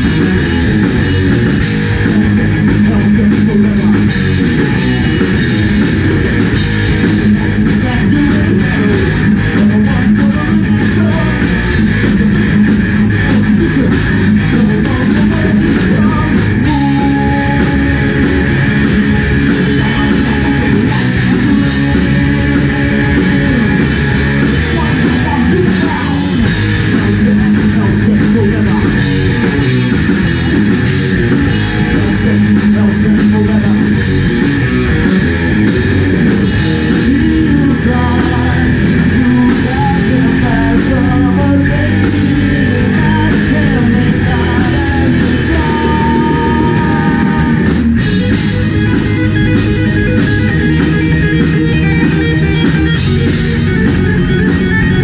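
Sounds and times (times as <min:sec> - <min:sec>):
heavy metal band playing: 0:00.0 - 0:55.0.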